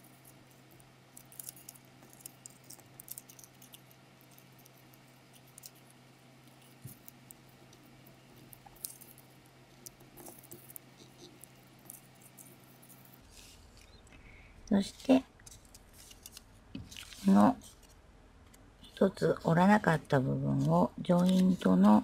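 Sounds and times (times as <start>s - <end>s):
faint low hum: 0.0s - 22.0s
paper rustling and crinkling: 15.0s - 18.0s, 20.5s - 22.0s
paper clicks: 20.6s - 22.0s.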